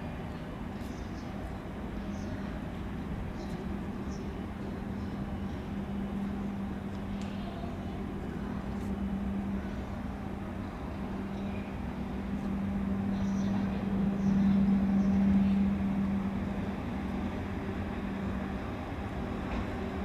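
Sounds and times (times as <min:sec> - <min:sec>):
electric trains humming: 0:00.0 - 0:20.0
low rumble: 0:05.0 - 0:20.0.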